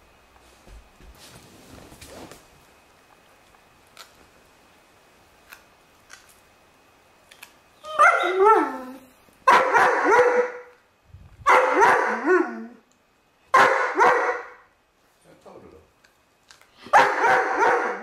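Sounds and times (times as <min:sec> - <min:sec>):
dog barking: 0:09.4 - 0:10.8, 0:11.4 - 0:12.6, 0:13.5 - 0:14.7, 0:16.9 - 0:18.0.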